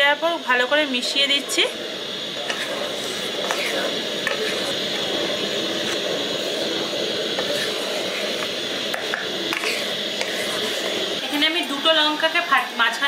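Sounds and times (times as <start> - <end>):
steady hiss: 0.5 - 13.0
utensil scraping metal pan: 2.3 - 11.0.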